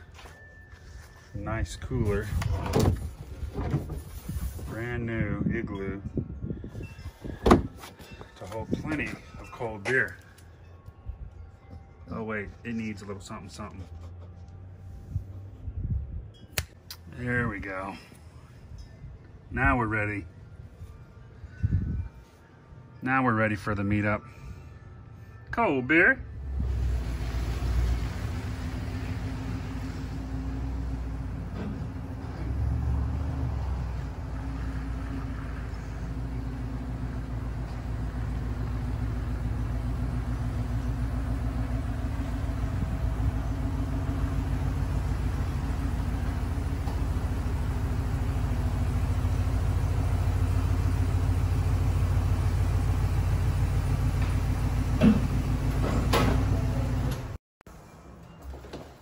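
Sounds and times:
truck engine hum reversing: 26.3s - 58.6s.

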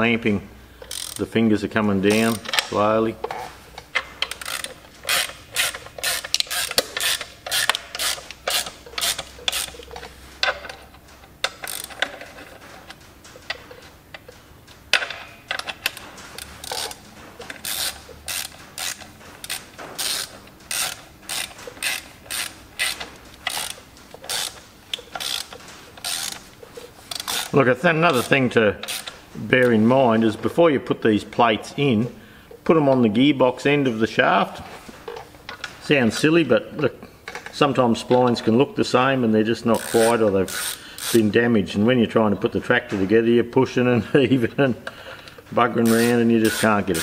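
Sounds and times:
ratchet spanner clicking: 0.8s - 1.3s, 3.9s - 10.8s, 11.4s - 12.3s, 14.9s - 29.2s, 39.8s - 41.2s, 45.8s - 47.0s.

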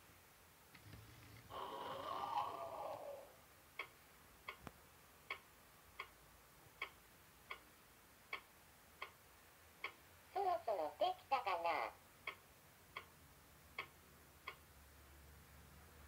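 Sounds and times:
timer ticking from speaker: 3.7s - 10.1s, 12.0s - 15.0s.

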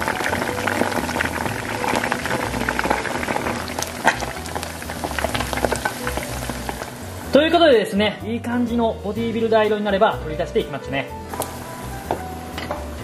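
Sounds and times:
food deep-frying in sizzling oil: 0.0s - 7.4s, 11.3s - 13.0s.

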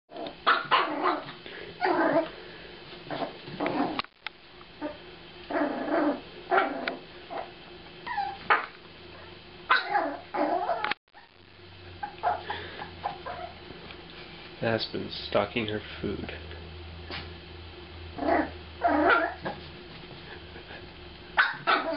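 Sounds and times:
puppy yapping and whining: 0.4s - 2.3s, 4.8s - 11.4s, 12.0s - 13.6s, 18.2s - 19.6s, 21.4s - 21.9s.

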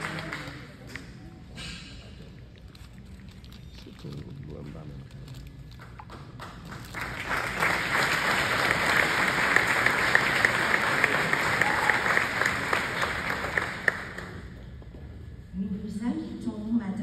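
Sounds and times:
audience applauding: 0.0s - 0.9s, 5.8s - 14.6s.

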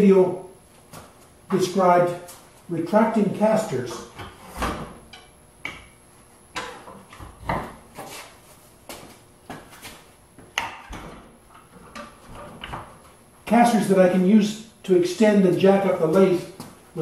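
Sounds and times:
footsteps: 7.1s - 10.5s.

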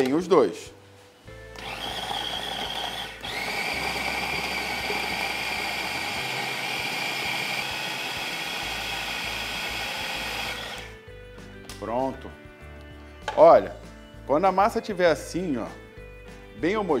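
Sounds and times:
food processor motor whining: 1.6s - 11.0s.

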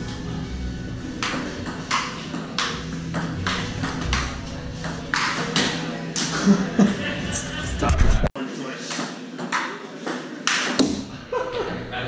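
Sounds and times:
ping pong ball hits: 1.2s - 5.8s.

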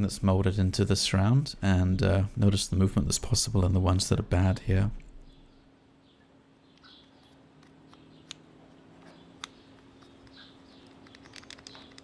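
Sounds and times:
faint steady hum: 0.0s - 12.0s
small plastic clicks and ticks: 9.0s - 12.0s.

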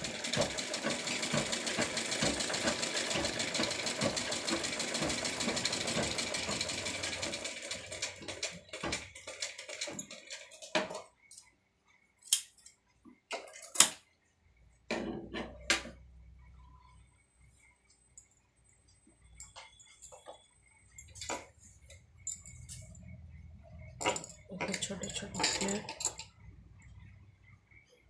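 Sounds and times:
sewing machine clatter: 0.0s - 11.1s.

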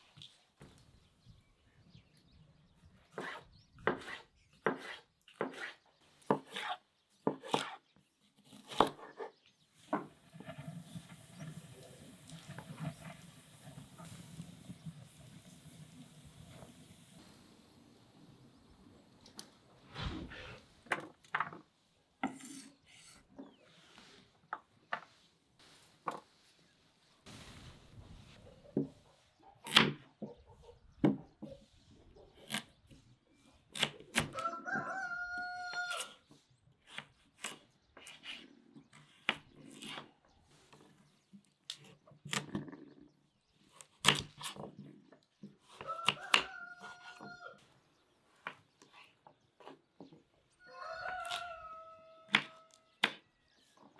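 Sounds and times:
knife chopping on wooden board: 3.2s - 7.8s
rooster crowing: 34.3s - 36.1s, 45.8s - 47.6s, 50.6s - 52.9s.

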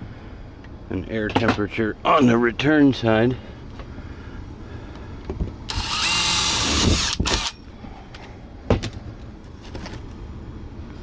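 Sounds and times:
low steady hum: 0.0s - 11.0s
drill grinding through sheet metal: 5.7s - 7.6s.

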